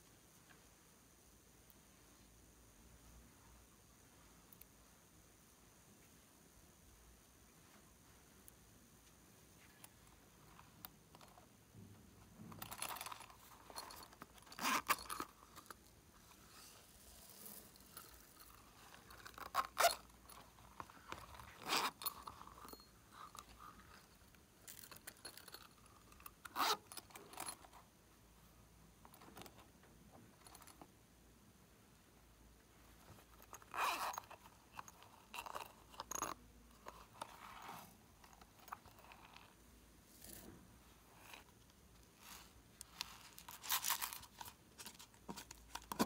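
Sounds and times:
quiet rustling: 0:01.6 - 0:31.1, 0:31.7 - 0:46.0
zipper clicks and rasps: 0:12.5 - 0:27.8, 0:33.1 - 0:46.0.

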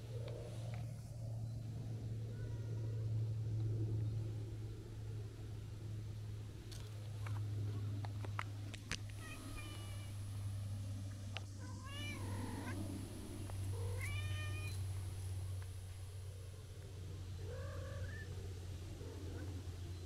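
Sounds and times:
cat meowing: 0:09.2 - 0:10.1, 0:11.6 - 0:12.8, 0:13.8 - 0:14.8.

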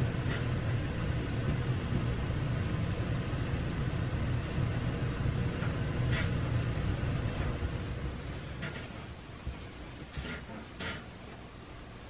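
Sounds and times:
low background rumble: 0:00.0 - 0:12.0.

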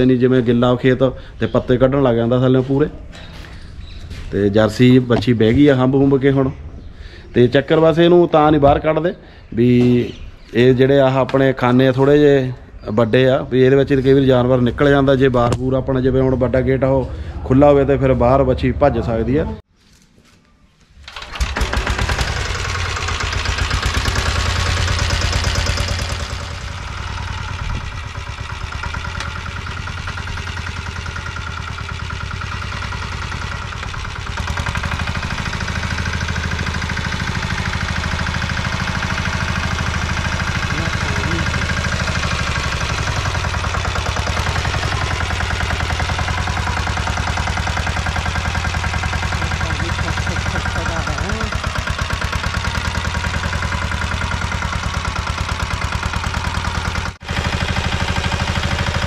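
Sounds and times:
reaper engine running: 0:21.0 - 0:59.0.

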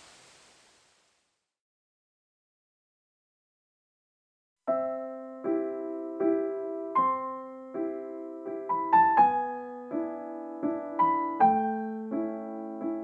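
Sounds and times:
soft piano chords: 0:04.7 - 0:13.0.

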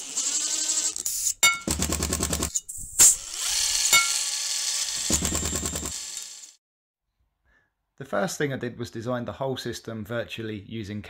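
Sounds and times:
power drill rattling: 0:00.0 - 0:02.5, 0:03.2 - 0:06.6.

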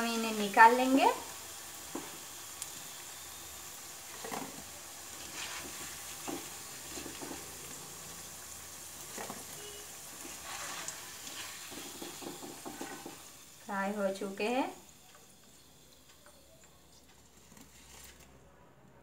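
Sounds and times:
potatoes sizzling in hot oil: 0:00.0 - 0:18.2
spatula knocking and scraping pan: 0:05.2 - 0:07.5, 0:09.1 - 0:13.3.

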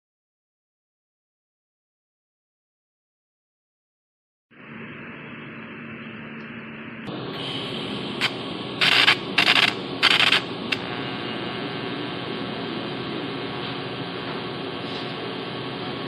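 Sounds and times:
arc welding hiss: 0:07.1 - 0:16.0
welding arc loud bursts: 0:07.1 - 0:16.0.

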